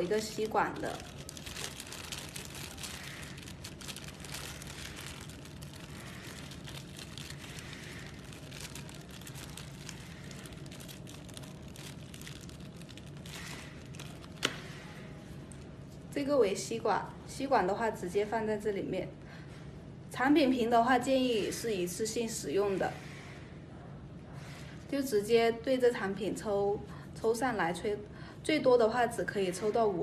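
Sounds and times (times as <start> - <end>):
plastic packet crinkling: 0.0 - 14.9.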